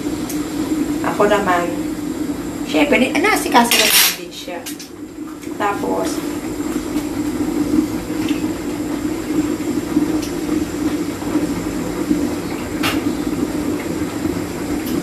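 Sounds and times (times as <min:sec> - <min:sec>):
tap water running into sink: 0:03.6 - 0:15.0.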